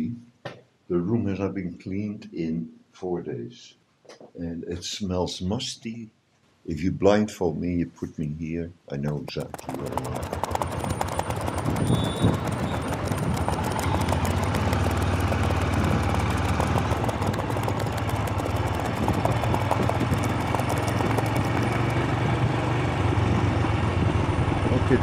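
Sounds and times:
motorcycle engine thumping: 0:09.1 - 0:22.5
horses' hooves on road: 0:09.1 - 0:23.7.

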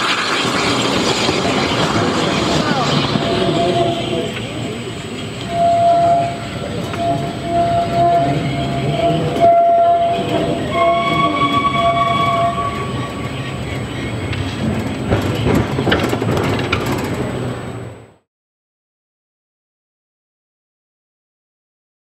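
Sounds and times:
locomotive running: 0:00.0 - 0:18.2
higher whistle note: 0:05.4 - 0:13.4
long train whistle: 0:05.4 - 0:13.4.

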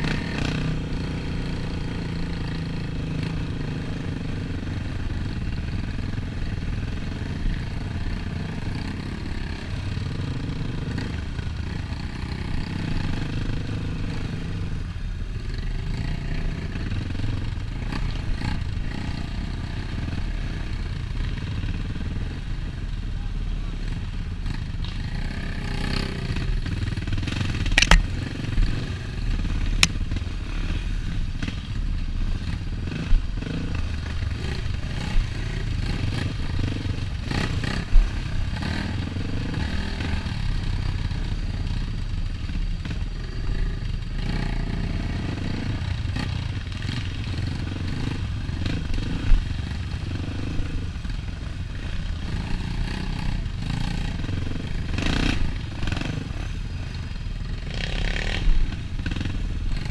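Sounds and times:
dirt bike engine revving: 0:32.3 - 0:41.8, 0:51.8 - 0:56.6.

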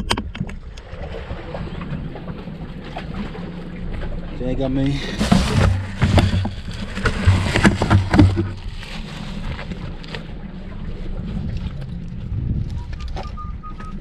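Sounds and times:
wind rumble on microphone: 0:00.0 - 0:14.0
handling noise on microphone: 0:04.8 - 0:10.3.

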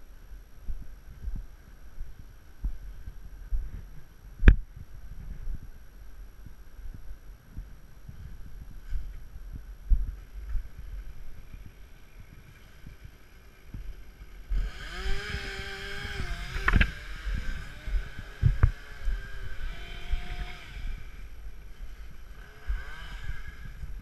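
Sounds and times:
chainsaw revving: 0:11.6 - 0:24.0.

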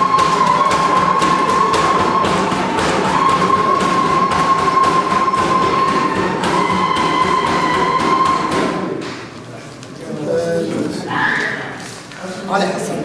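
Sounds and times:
music with steady beat: 0:00.0 - 0:09.0.

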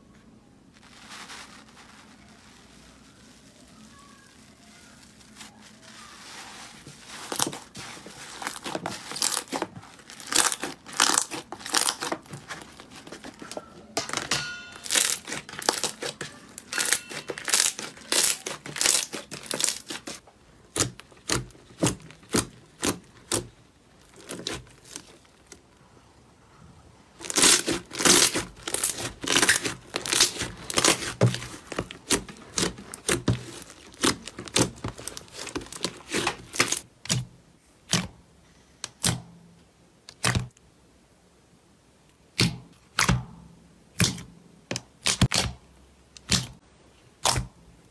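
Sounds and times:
slime popping and squelching: 0:02.2 - 0:25.6, 0:27.2 - 0:37.2.

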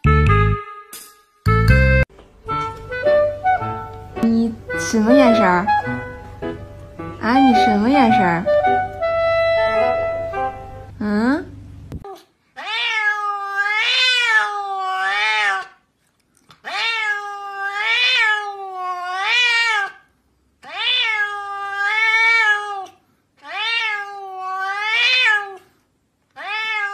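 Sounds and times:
cat meowing: 0:12.1 - 0:15.8, 0:16.6 - 0:25.7, 0:26.3 - 0:26.9.

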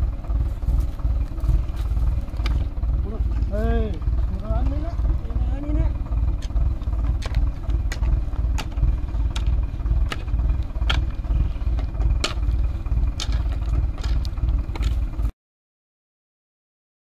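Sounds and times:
digger engine idling: 0:00.0 - 0:15.3
shovel scraping stony soil: 0:06.4 - 0:15.3.

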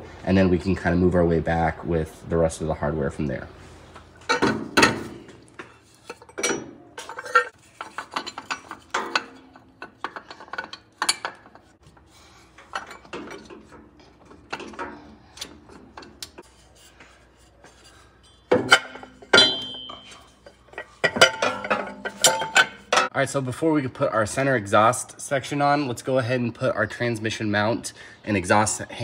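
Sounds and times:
metal clinks and scrapes: 0:04.2 - 0:23.1
loud ringing metal clank: 0:18.6 - 0:20.3.

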